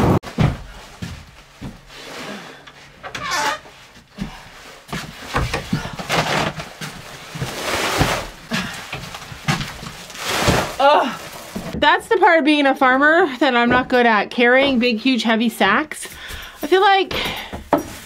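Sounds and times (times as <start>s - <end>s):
footsteps: 0.0s - 2.1s, 3.6s - 11.9s
sack rustling: 6.1s - 11.8s.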